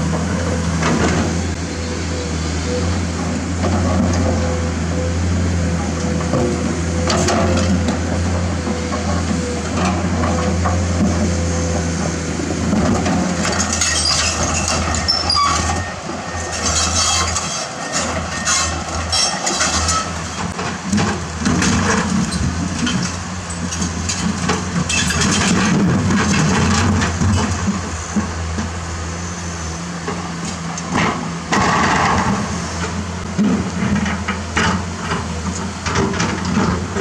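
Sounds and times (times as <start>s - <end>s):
excavator diesel engine humming: 0.0s - 37.0s
steel bucket scraping rocks: 13.3s - 20.6s.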